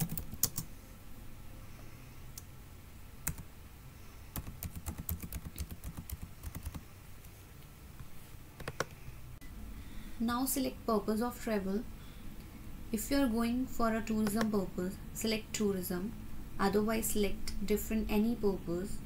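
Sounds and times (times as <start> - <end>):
computer keyboard typing: 0.0 - 0.7, 3.2 - 3.5, 4.3 - 6.8, 8.6 - 9.0.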